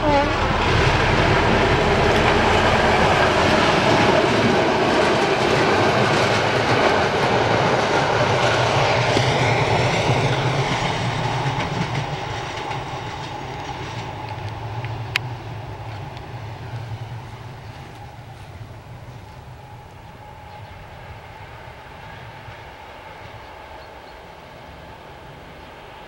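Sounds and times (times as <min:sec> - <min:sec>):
diesel engine drone: 0:00.0 - 0:04.8
train wheels clacking over rails: 0:00.0 - 0:26.0.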